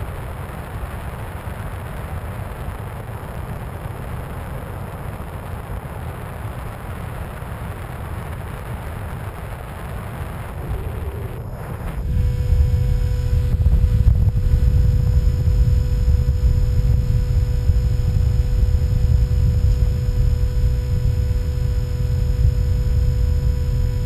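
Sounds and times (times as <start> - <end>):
wind buffeting microphone: 0.0 - 24.0
electric motor and propeller hum: 9.6 - 24.0.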